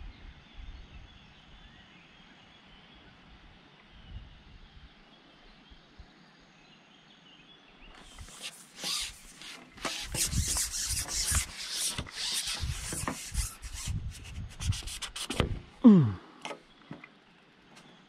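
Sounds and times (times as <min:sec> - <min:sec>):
rubbing on microphone: 0:08.0 - 0:15.7.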